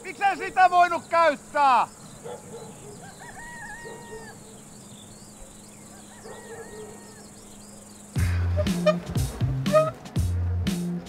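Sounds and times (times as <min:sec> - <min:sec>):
small birds chirping: 0:00.0 - 0:10.2
rooster crowing: 0:02.8 - 0:04.6, 0:05.8 - 0:07.5.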